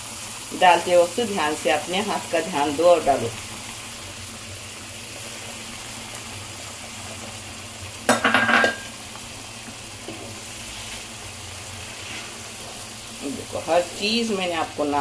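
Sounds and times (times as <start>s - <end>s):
liquid sizzling in a frying pan: 0.0s - 15.0s
utensils clattering: 8.1s - 8.9s
wooden spoon stirring: 11.8s - 13.2s.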